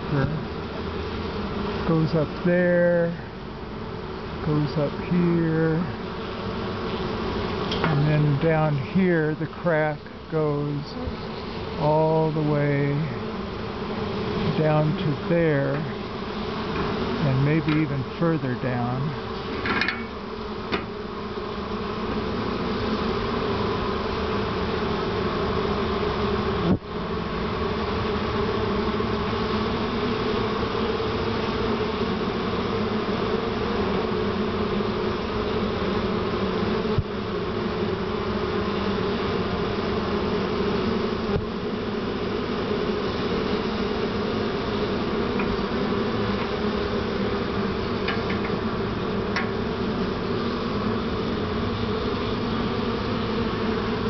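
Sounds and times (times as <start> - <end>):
bees buzzing: 0.0 - 54.0.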